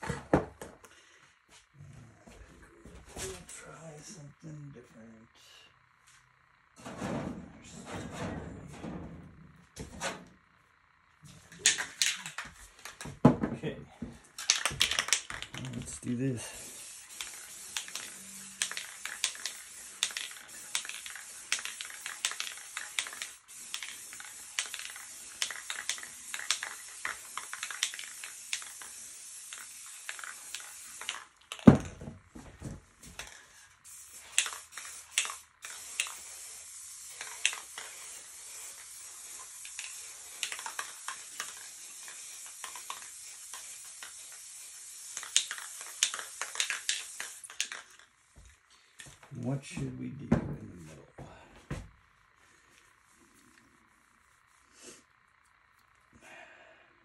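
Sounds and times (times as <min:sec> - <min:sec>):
spray paint can hissing: 0:11.3 - 0:13.1, 0:14.3 - 0:48.4
small clicks: 0:45.1 - 0:48.1.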